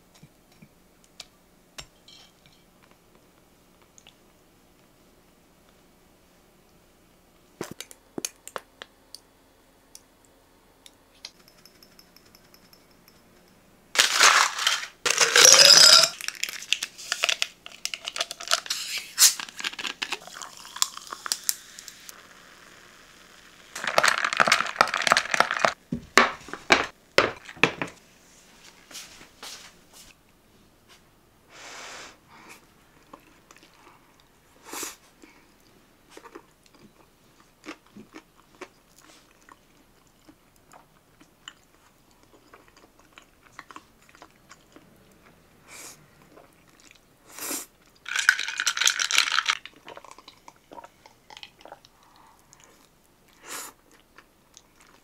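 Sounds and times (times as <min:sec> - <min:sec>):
plastic packaging crinkling and tearing: 0:14.0 - 0:15.4, 0:16.2 - 0:21.2, 0:23.8 - 0:25.8.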